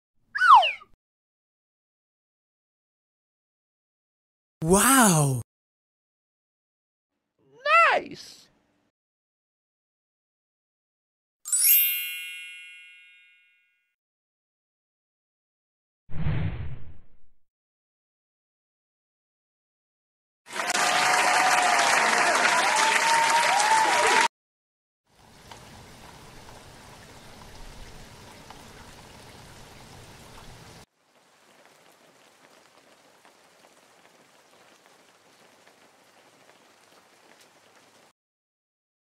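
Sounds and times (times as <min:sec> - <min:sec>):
hot oil sizzling: 0:25.1 - 0:38.1.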